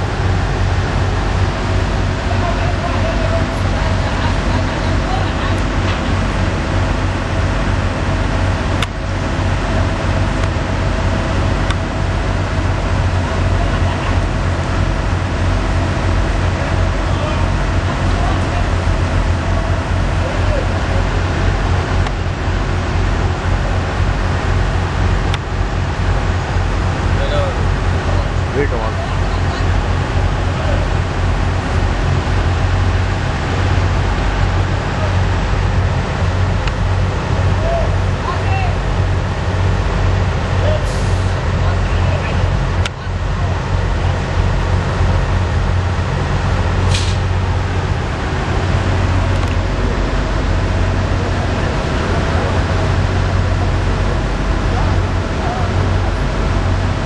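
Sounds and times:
diesel engine running: 0:00.0 - 0:57.0
heavy machinery rumbling: 0:00.0 - 0:57.0
road noise: 0:00.0 - 0:57.0
air hiss: 0:46.9 - 0:47.3.

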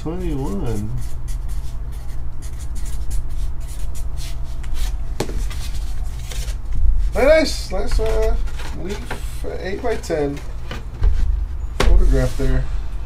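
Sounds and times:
steady low hum: 0:00.0 - 0:13.0
marker scratching on cardboard: 0:00.2 - 0:06.5.

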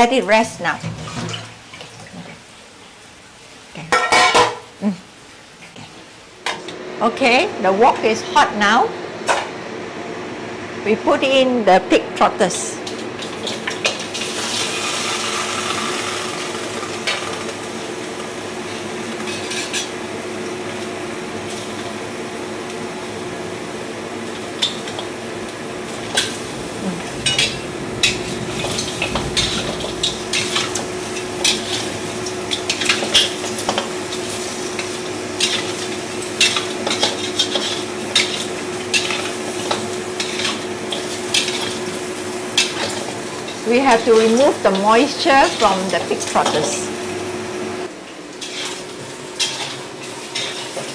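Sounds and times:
meat sizzling in a wok: 0:12.9 - 0:50.9
low hum: 0:24.8 - 0:34.8
metal spatula scraping wok: 0:25.9 - 0:41.8, 0:48.4 - 0:48.8, 0:50.4 - 0:50.9.

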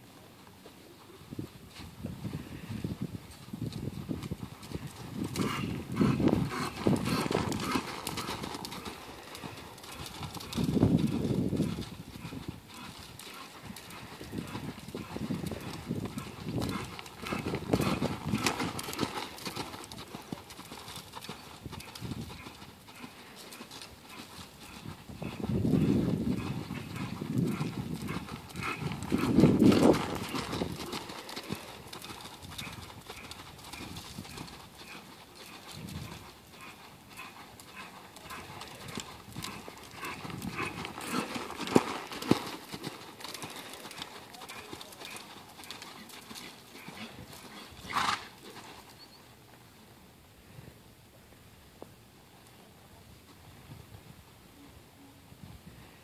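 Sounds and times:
horse hoofbeats in sand: 0:00.0 - 0:49.6.

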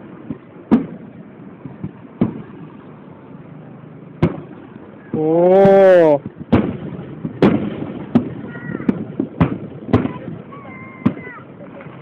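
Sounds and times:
faint firework pops: 0:00.2 - 0:01.0, 0:01.6 - 0:02.6, 0:04.2 - 0:10.4
firework shells bursting: 0:04.2 - 0:11.4
person exclaiming excitedly: 0:05.2 - 0:06.2.

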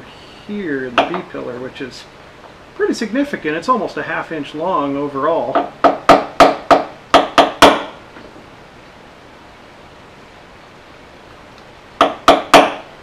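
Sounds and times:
faint steady hiss: 0:00.0 - 0:13.0
hammer tapping center punch: 0:05.6 - 0:08.0, 0:12.0 - 0:12.9.

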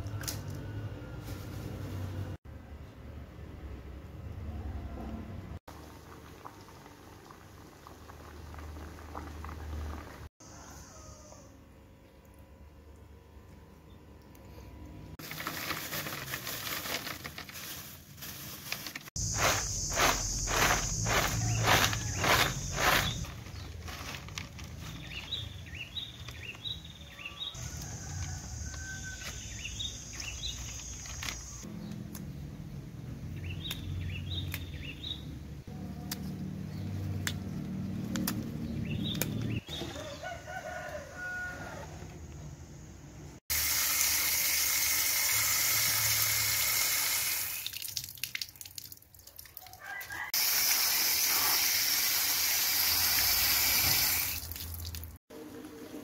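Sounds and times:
tap water gushing: 0:43.5 - 0:48.6, 0:50.4 - 0:55.1.

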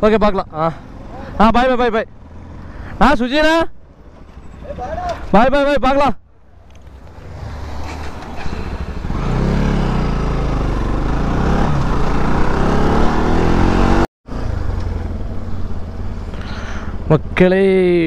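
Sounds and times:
wind and road noise: 0:00.0 - 0:18.0
motorcycle engine accelerating: 0:06.9 - 0:17.4.

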